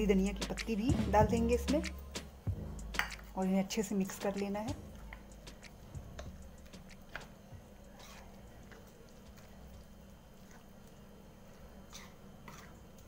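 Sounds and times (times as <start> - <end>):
wet batter squelching: 4.2 - 13.0.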